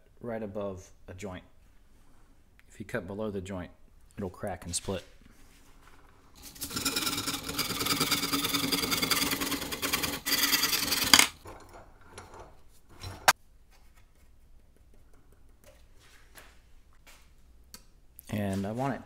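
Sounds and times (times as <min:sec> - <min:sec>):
hand saw rasping through bamboo: 0:06.4 - 0:11.4.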